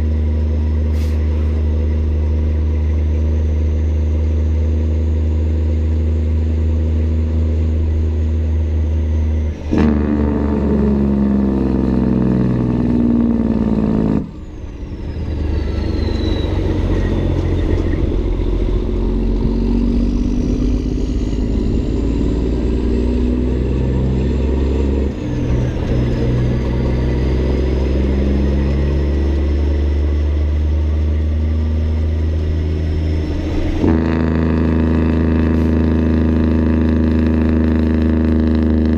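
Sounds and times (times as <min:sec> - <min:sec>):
truck diesel engine accelerating: 0:00.0 - 0:38.9
faint high whistle: 0:14.9 - 0:18.0.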